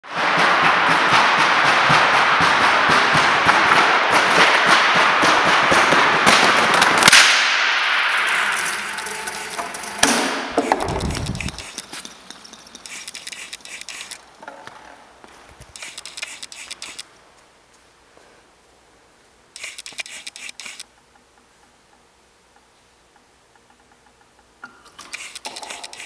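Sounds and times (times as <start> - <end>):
wooden pallets clattering: 0.2 - 13.3
loud wood crack: 1.2 - 14.9.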